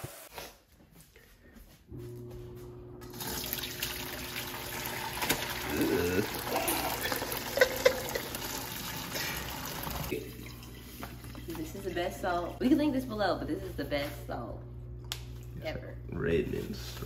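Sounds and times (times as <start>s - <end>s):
broth pouring through a colander: 3.1s - 11.8s.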